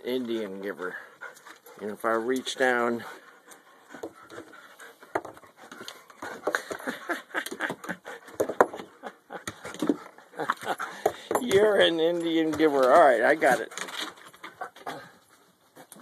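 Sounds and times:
dog panting: 0.1 - 11.3.

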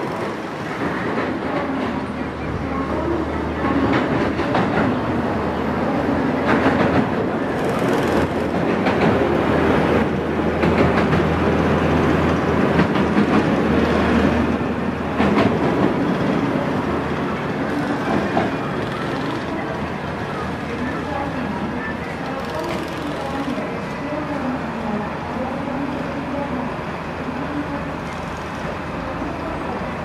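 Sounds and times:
train wheels rumbling on rails: 0.0 - 30.0
rail clacks: 3.3 - 5.4, 6.3 - 21.0.

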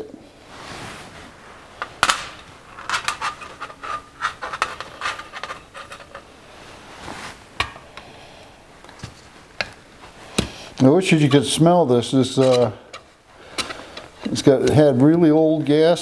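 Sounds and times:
soft metal scraping: 0.5 - 7.8, 11.1 - 14.6.

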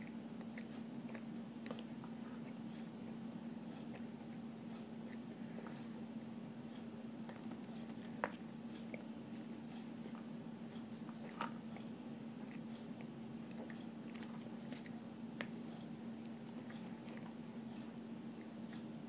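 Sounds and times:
person chewing crunchy food: 0.0 - 2.9, 7.2 - 19.0
steady low hum: 0.0 - 19.0.

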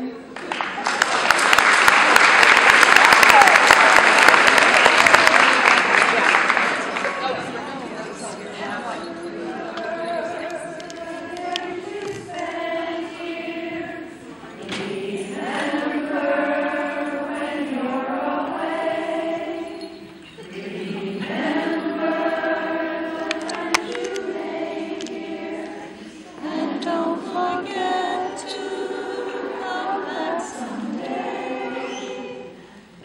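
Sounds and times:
women singing together: 8.3 - 33.0.

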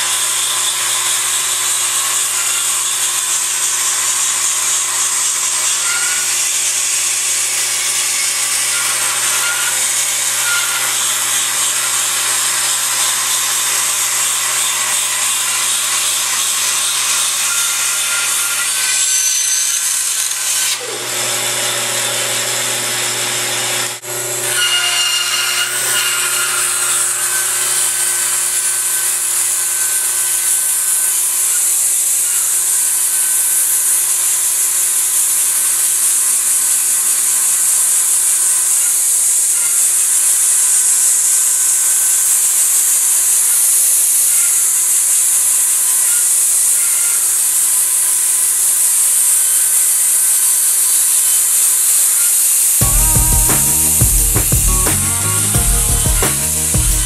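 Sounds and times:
band saw cutting wood: 0.0 - 57.0.

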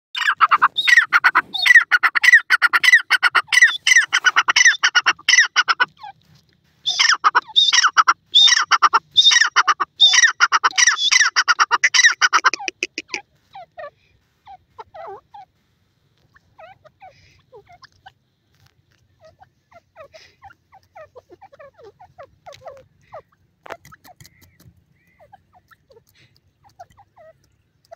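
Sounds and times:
francolin calling: 0.2 - 6.0, 6.8 - 15.5.

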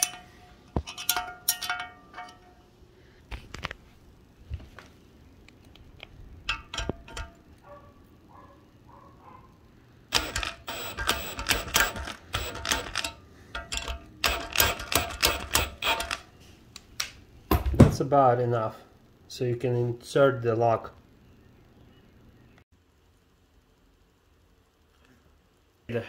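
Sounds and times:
metallic clicking and clattering: 0.0 - 2.7, 6.4 - 7.6, 10.1 - 16.3.

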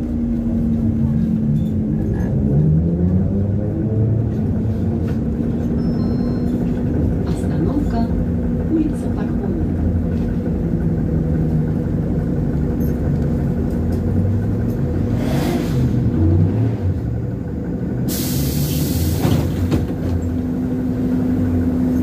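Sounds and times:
trolleybus cabin rumble: 0.0 - 22.0
compressed air hiss: 18.1 - 19.2.

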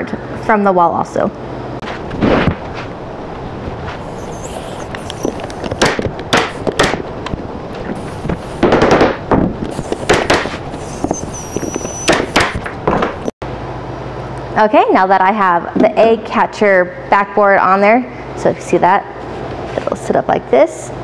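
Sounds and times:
staple gun shots: 10.0 - 10.6.

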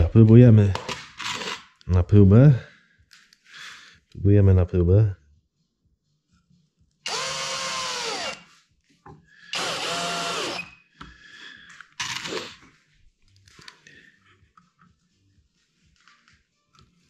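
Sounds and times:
drill-driver motor whine: 7.1 - 8.4, 9.5 - 10.8.

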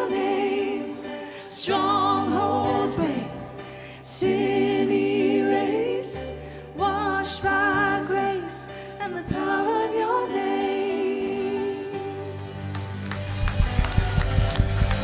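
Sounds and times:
group singing worship song: 0.0 - 12.6
singers breathing: 3.6 - 4.1
band playing: 12.5 - 15.0.

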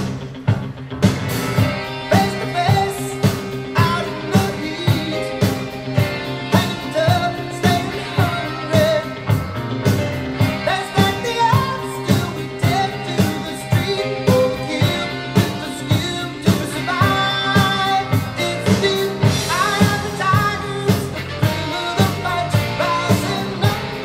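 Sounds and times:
pop song through speakers: 0.0 - 24.0.

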